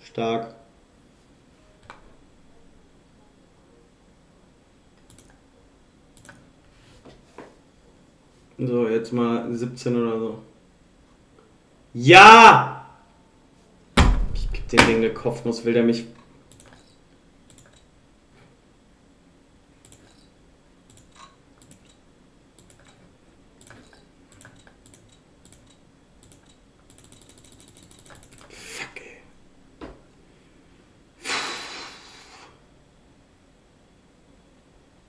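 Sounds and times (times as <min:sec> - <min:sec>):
burst of noise: 0:31.2 - 0:32.3.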